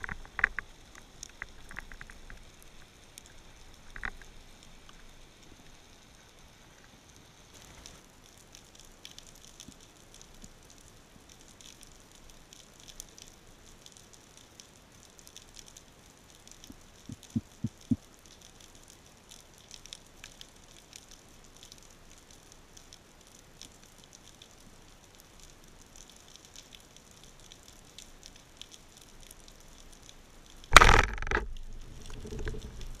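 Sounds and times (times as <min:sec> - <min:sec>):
faint underwater crackling: 0:00.0 - 0:33.0
speargun firing crack: 0:30.7 - 0:31.5.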